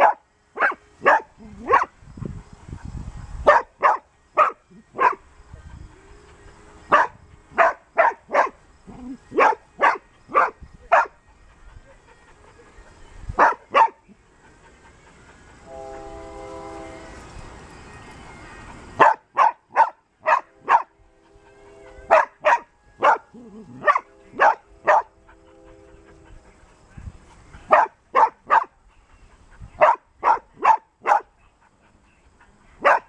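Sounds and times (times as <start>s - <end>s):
dog barking: 0.0s - 1.9s, 3.5s - 5.2s, 6.9s - 8.6s, 9.4s - 11.1s, 13.4s - 14.0s, 19.0s - 20.9s, 22.1s - 25.1s, 27.7s - 28.8s, 29.8s - 31.3s, 32.8s - 33.0s
steady horn-like tone: 15.6s - 17.4s, 20.4s - 27.8s.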